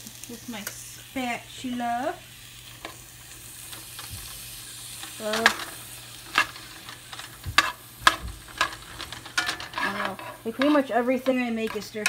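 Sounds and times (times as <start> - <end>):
vegetables sizzling in a frying pan: 0.0 - 12.0.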